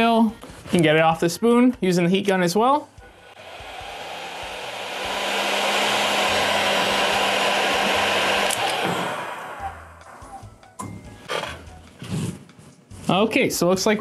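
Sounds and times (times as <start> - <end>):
heat gun blowing air: 3.1 - 10.2
heat gun switch click: 8.4 - 9.1.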